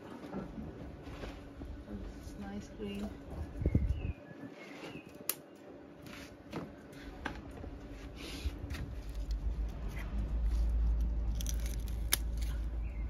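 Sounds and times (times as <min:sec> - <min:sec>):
low microphone rumble: 0:00.5 - 0:04.2
scissors snipping: 0:10.9 - 0:12.7.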